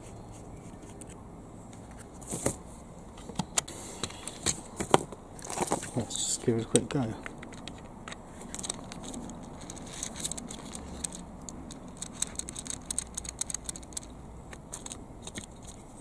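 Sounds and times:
plastic gearbox clicking and rattling: 6.7s - 15.8s.

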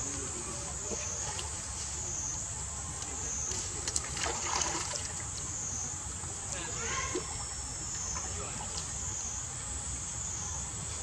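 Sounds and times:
water splashing and lapping: 3.7s - 5.5s
high-pitched insect drone: 5.5s - 11.0s.

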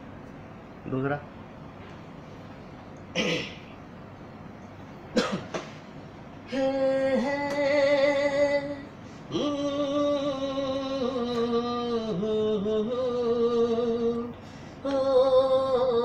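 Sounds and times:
man singing unaccompanied: 6.5s - 16.0s.

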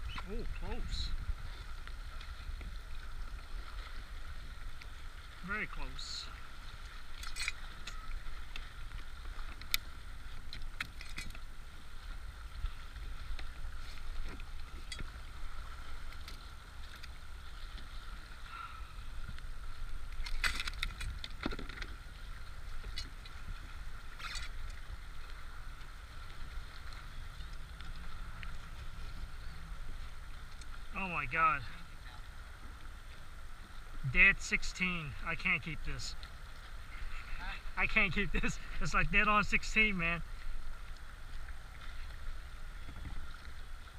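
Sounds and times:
wind and water rumble: 0.0s - 43.9s.

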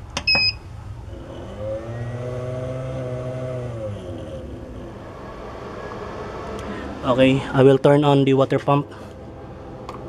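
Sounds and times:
inverter hum: 0.0s - 10.0s.

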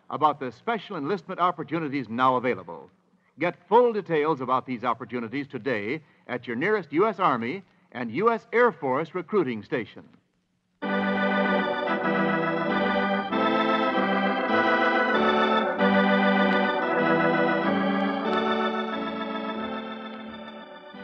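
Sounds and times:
organ chords: 10.8s - 21.0s.

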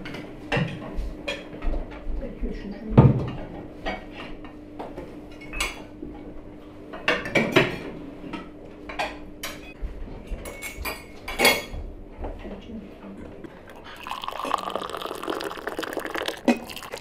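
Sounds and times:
cutlery clinking against plates: 7.0s - 11.8s.

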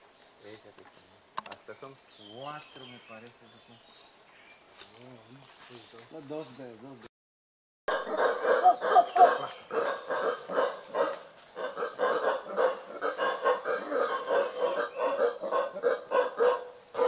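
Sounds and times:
howler monkeys grunting: 7.9s - 17.0s.

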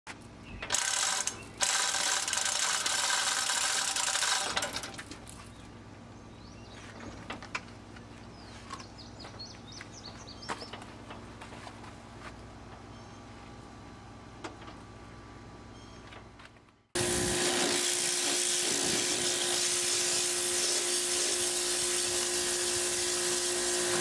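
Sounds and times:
ratchet clattering: 0.6s - 5.2s
hoist chain rattling: 0.7s - 5.3s.

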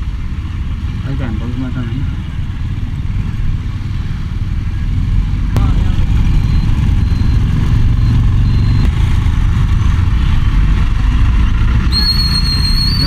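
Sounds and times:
motorcycle engine rumble: 0.0s - 13.0s.

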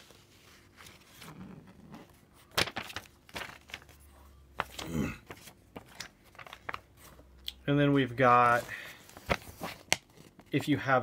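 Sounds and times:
paper rustling: 0.0s - 7.3s, 8.2s - 10.8s.

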